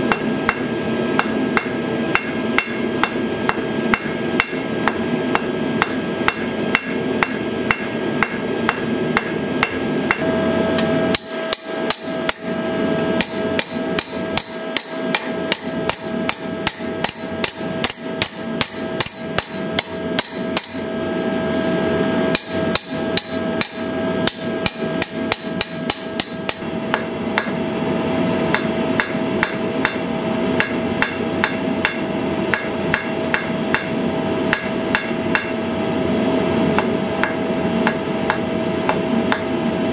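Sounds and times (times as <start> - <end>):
anvil ringing: 0.0 - 21.0, 22.3 - 27.6
hammer striking iron on anvil: 0.0 - 21.0, 22.3 - 27.6, 28.5 - 35.6, 36.8 - 39.6.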